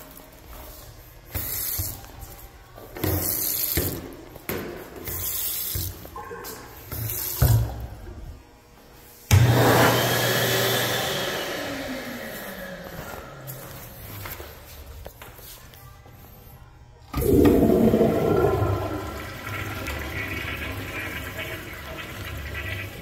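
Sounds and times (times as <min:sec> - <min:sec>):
swirling draining water: 0:17.1 - 0:23.0
toilet flushing: 0:17.1 - 0:23.0.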